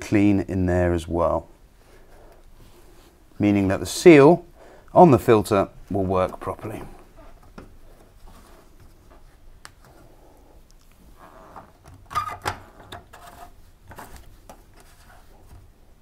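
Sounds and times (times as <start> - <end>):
plastic filter rubbing and scraping: 12.2 - 15.6.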